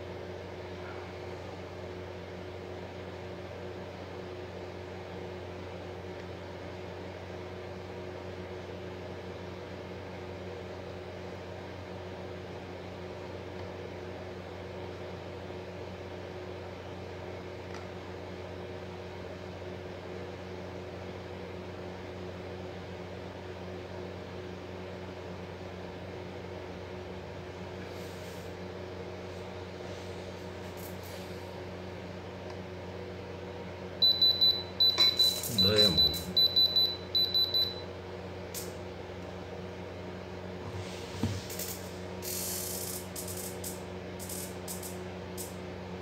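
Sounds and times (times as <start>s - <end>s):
steady low hum: 26.3s - 46.0s.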